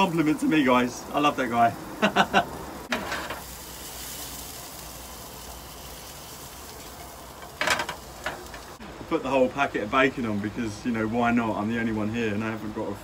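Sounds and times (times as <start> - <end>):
mushrooms sizzling in a frying pan: 0.0 - 13.0
mushrooms tossed in a pan: 2.9 - 9.3.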